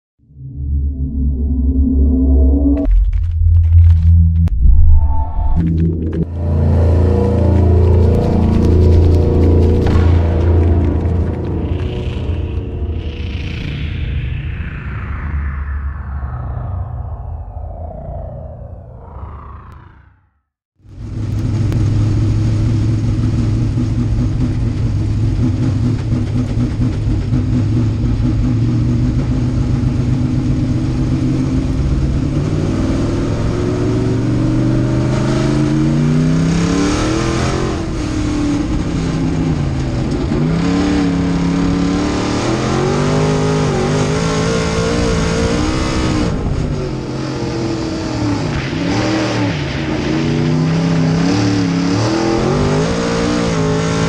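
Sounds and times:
race car engine revving: 21.0s - 54.0s.

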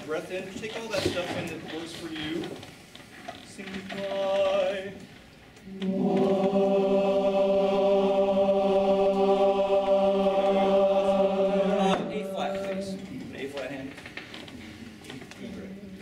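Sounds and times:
barbershop chorus singing a cappella: 3.7s - 5.1s, 5.7s - 13.1s.

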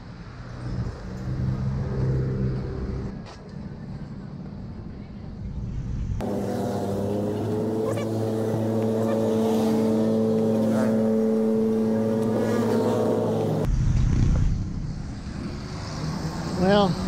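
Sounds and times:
low rumble of road traffic: 0.0s - 17.0s
vehicle engine running: 6.2s - 13.9s.

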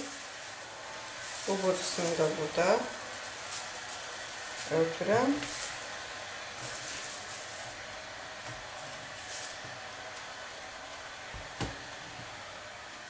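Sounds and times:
plastic sheeting rustling: 0.0s - 10.4s
steady hiss: 0.0s - 11.2s.

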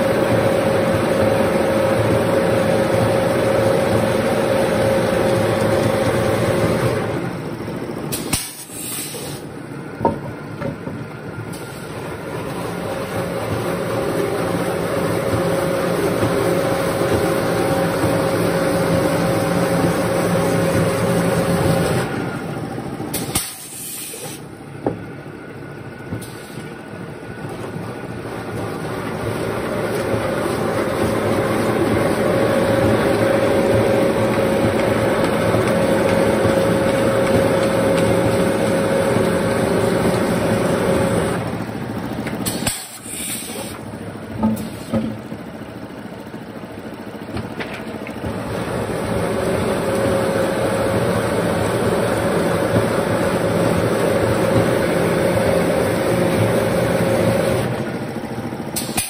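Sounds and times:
machine motor whirring with hum: 9.5s - 23.2s, 24.4s - 42.5s.

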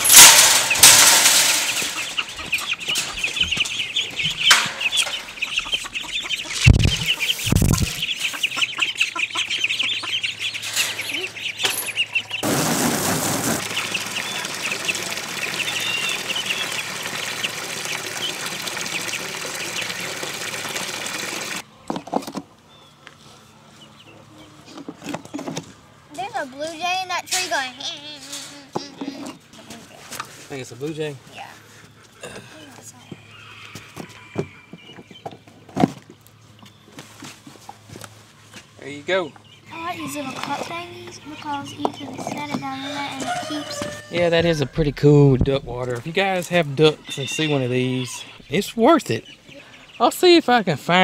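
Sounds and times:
poultry calling: 1.0s - 12.4s, 33.0s - 35.3s, 39.6s - 45.0s, 46.2s - 50.1s
hose water splashing into pool: 12.4s - 21.6s.

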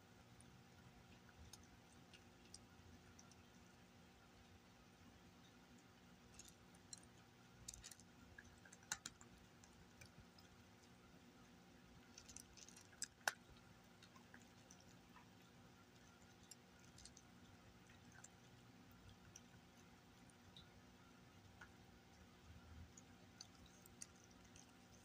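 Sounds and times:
cat crunching dry kibble: 6.2s - 11.1s, 11.9s - 19.7s, 23.0s - 25.0s.

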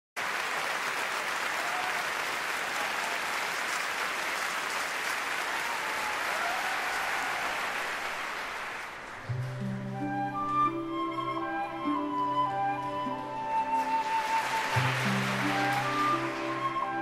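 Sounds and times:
audience applauding: 0.2s - 10.1s, 12.8s - 17.0s.

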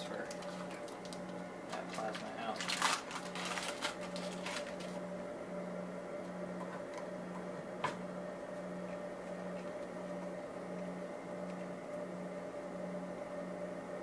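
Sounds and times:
pulsing machine hum: 0.0s - 14.0s
plastic tube rustling: 0.3s - 5.0s.

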